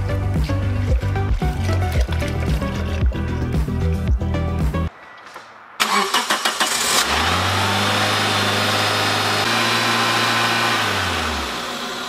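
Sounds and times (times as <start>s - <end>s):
car engine cranking: 5.8s - 12.0s
car engine idling: 5.8s - 12.0s.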